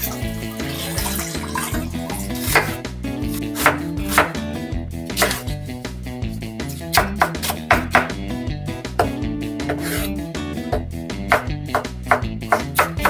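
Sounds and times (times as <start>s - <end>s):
background music: 0.0s - 13.0s
knife chopping on cutting board: 2.1s - 4.4s, 5.1s - 5.6s, 6.7s - 8.3s, 8.9s - 13.0s.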